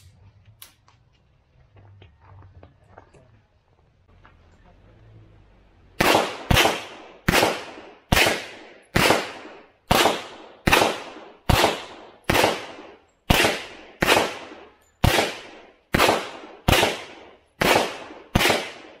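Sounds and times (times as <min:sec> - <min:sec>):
pistol shots echoing: 0:06.0 - 0:19.0.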